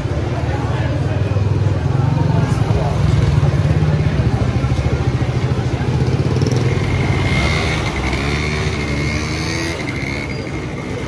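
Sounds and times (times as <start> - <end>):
faint voices: 0.0 - 11.0.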